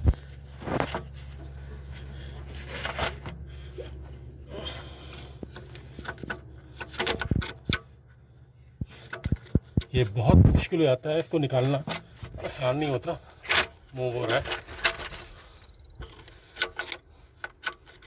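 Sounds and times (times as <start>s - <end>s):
pick tool scraping rubber hose: 0.0s - 8.0s, 11.3s - 18.0s
low steady hum: 0.0s - 18.0s.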